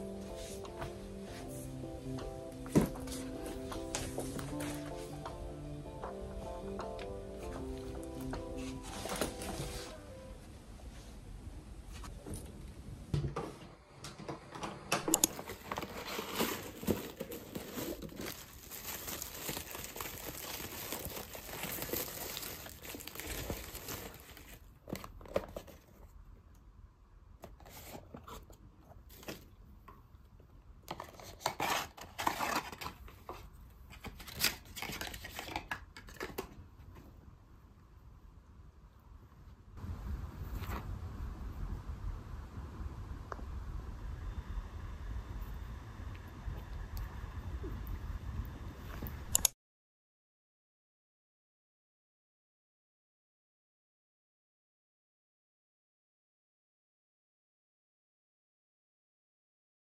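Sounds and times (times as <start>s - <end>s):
cardboard box rustling: 8.2s - 10.0s, 15.4s - 26.0s
paper crinkling and tearing: 15.3s - 25.6s, 31.0s - 33.0s, 33.9s - 36.2s.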